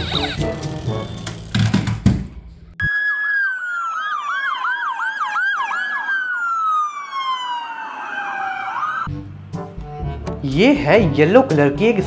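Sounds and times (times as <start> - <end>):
toy electronic siren: 0.0 - 1.4, 2.8 - 9.1.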